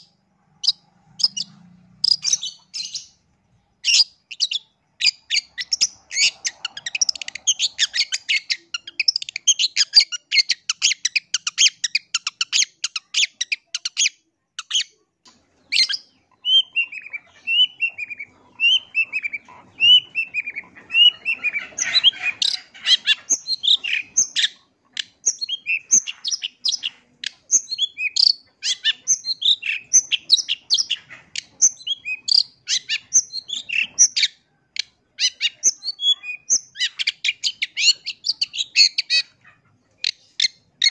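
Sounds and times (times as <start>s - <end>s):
bird scratchy chattering: 16.7s - 34.1s.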